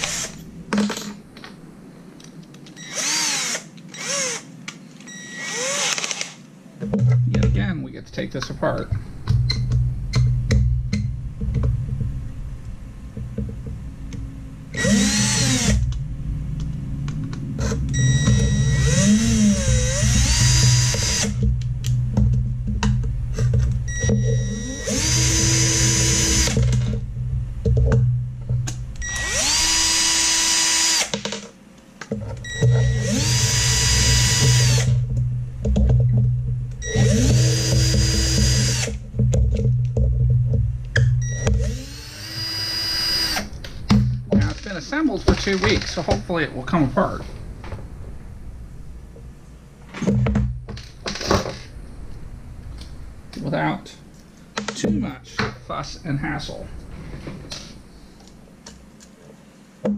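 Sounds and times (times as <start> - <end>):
cordless drill whining: 0.0 - 0.4, 2.8 - 4.5, 5.1 - 6.4, 14.8 - 15.9, 17.6 - 21.4, 23.9 - 26.8, 29.0 - 31.2, 32.4 - 35.0, 36.8 - 39.0, 41.3 - 43.5.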